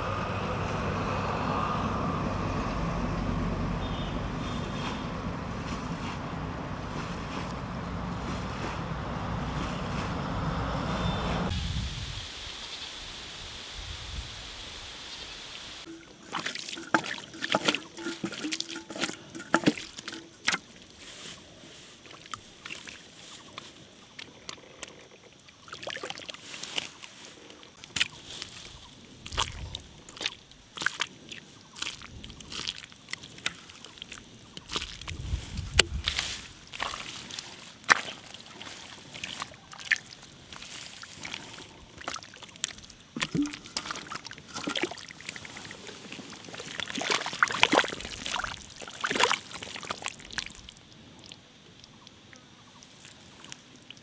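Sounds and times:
stream water sloshing: 15.8 - 54.0.

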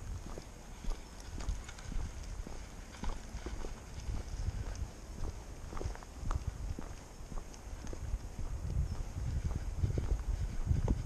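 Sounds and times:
footsteps on tarmac: 0.0 - 11.0
steady low rumble: 0.0 - 11.0.

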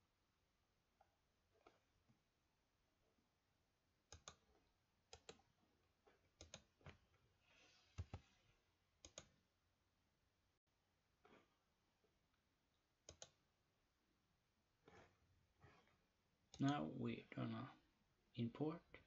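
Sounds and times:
computer mouse clicks: 4.1 - 5.5, 6.3 - 7.1, 7.8 - 8.4, 9.0 - 9.4, 13.0 - 13.4.

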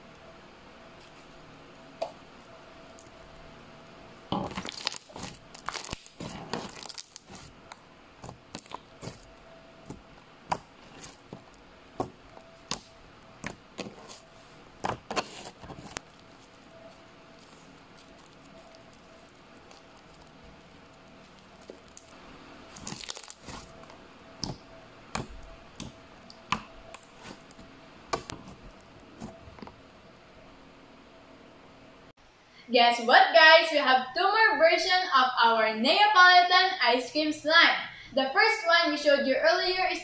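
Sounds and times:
slime popping and crackling: 4.3 - 29.3.

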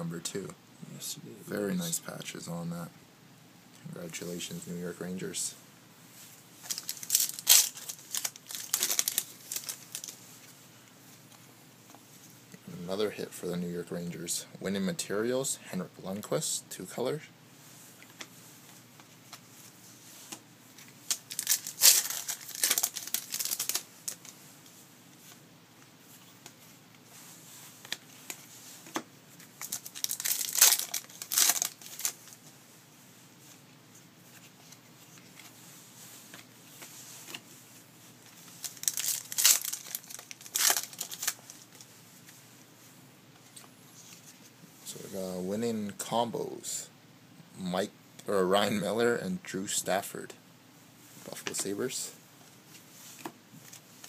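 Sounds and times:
foil wrappers tearing and crinkling: 6.6 - 10.2, 21.0 - 24.3, 29.6 - 32.4, 38.5 - 41.8.

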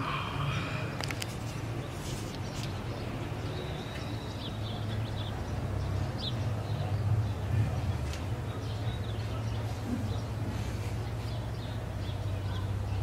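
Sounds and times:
steady low hum: 0.0 - 3.5.

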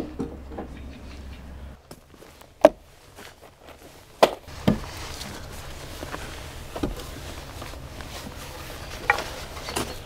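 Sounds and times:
timber posts knocking on wood: 4.2 - 4.9.

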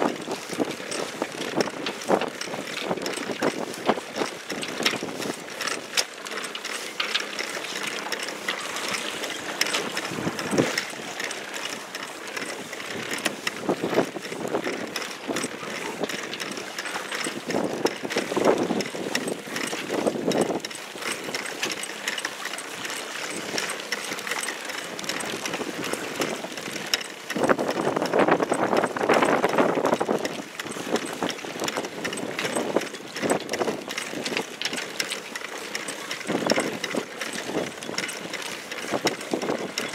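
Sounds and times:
water slapping boat hull: 0.0 - 39.9
wind on microphone: 27.4 - 34.3.

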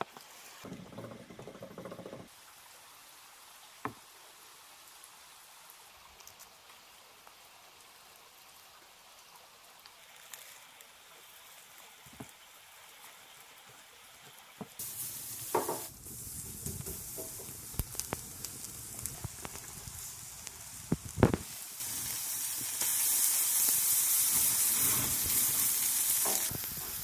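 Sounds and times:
steaks sizzling on a grill: 14.8 - 27.0
pops and crackles: 15.5 - 23.0, 23.6 - 27.0.

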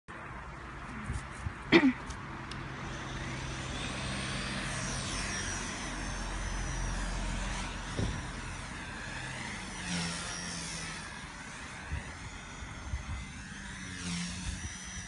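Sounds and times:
toy helicopter motor whining: 1.0 - 15.0
wind rumble on microphone: 11.7 - 15.0.

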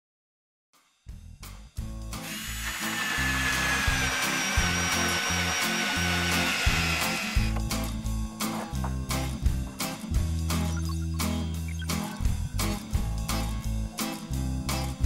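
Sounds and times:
music with bass line: 1.1 - 15.0
cordless drill motor whine: 2.2 - 7.6.

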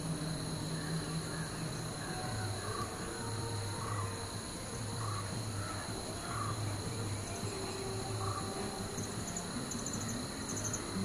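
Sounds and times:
insect chirping trills: 0.0 - 11.0
insects droning: 0.0 - 11.0.

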